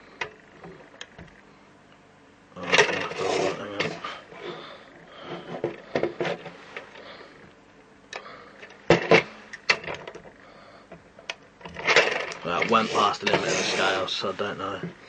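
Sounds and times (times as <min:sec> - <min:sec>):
handling knocks and clicks: 0:08.1 - 0:13.4.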